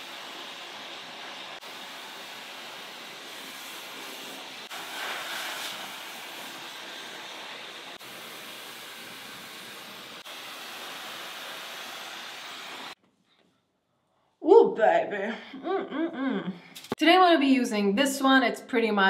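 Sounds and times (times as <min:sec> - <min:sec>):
hair dryer blowing air: 0:00.0 - 0:13.0.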